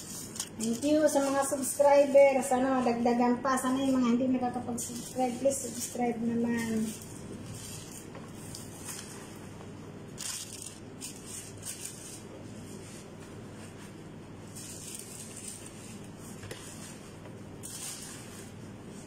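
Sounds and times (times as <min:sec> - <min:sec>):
rustling and crinkling of paper: 0:00.0 - 0:03.0, 0:03.6 - 0:19.0.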